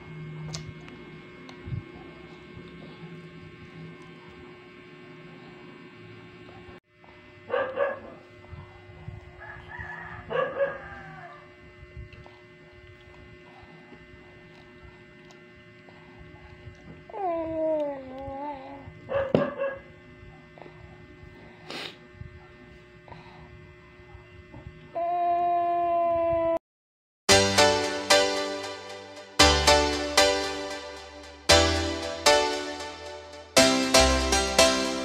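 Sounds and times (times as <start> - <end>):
faint steady hum: 0.0 - 26.6
dog yelping: 10.3 - 11.4.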